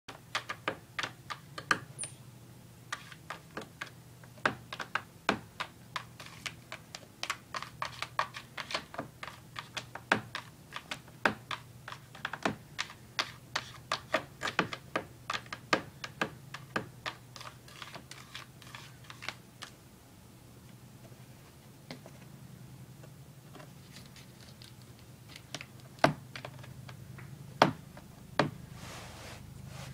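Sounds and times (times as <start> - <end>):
cat claws scratching plastic: 5.6 - 15.7, 16.5 - 19.4.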